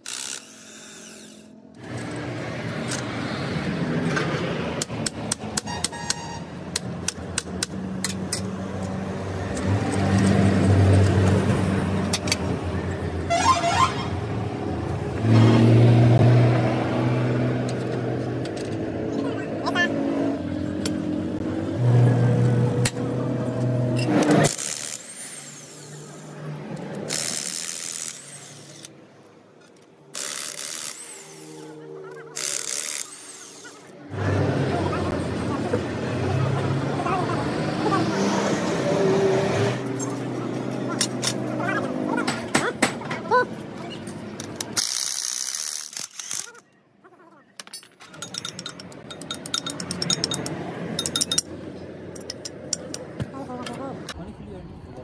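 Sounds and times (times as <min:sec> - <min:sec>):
electric impact wrench: 0:00.0 - 0:02.3, 0:24.1 - 0:26.4, 0:27.0 - 0:29.0, 0:30.1 - 0:33.9, 0:44.7 - 0:46.6.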